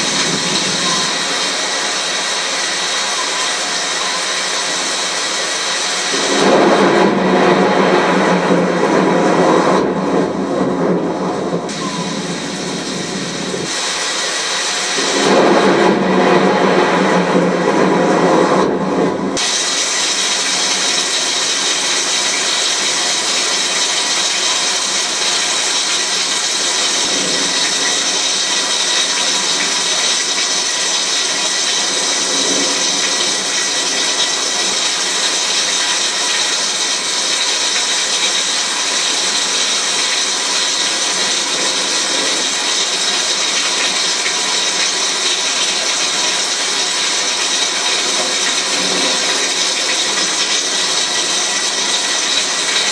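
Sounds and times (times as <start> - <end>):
heavy rain pouring: 0.0 - 52.9
deeper rushing noise: 5.9 - 19.7.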